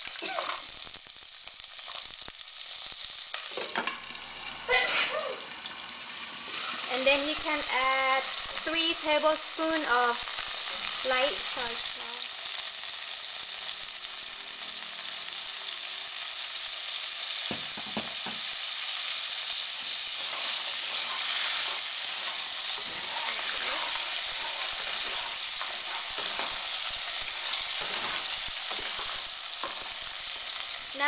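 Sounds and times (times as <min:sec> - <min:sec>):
food sizzling in hot oil: 0:00.0 - 0:31.0
spatula scraping pan: 0:04.7 - 0:05.2, 0:19.8 - 0:30.7.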